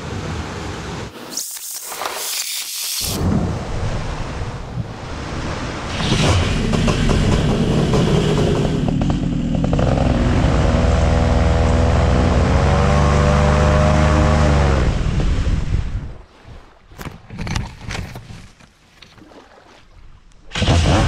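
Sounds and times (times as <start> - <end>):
speed boat engine running: 5.9 - 15.2.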